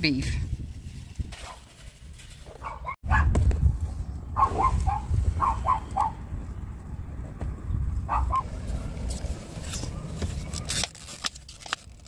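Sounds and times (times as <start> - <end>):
dog barking: 2.6 - 3.3, 4.4 - 6.2, 8.1 - 8.5.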